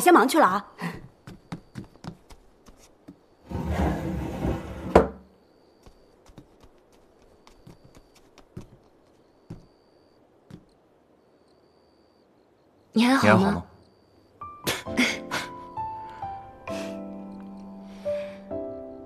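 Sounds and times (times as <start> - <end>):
light taps and knocks: 1.0 - 3.2.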